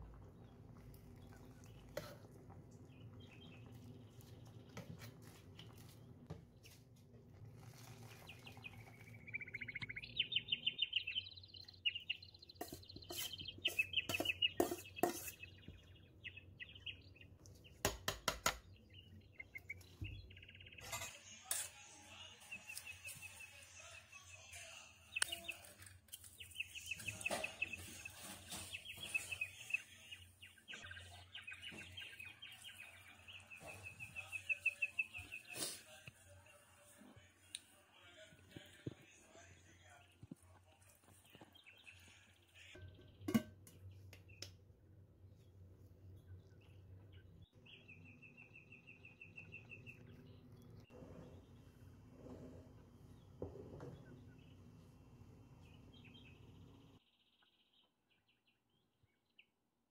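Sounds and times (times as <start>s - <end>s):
birds chirping in trills: 8.1s - 17.8s, 18.6s - 21.1s, 22.3s - 36.6s, 45.4s - 51.9s, 55.5s - 59.5s
metal spoon scraping a pot: 12.6s - 15.6s, 20.8s - 22.0s.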